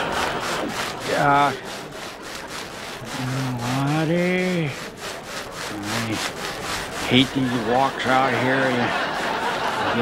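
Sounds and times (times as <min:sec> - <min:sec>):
cloth swishing rub: 0:00.0 - 0:08.0.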